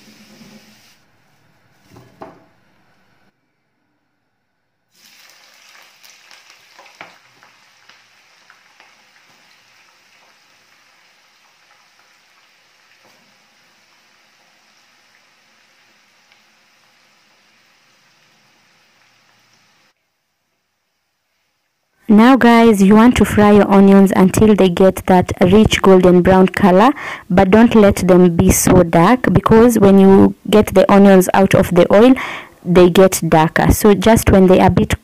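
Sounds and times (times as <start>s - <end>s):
onions sizzling in hot oil: 4.9s - 20.0s.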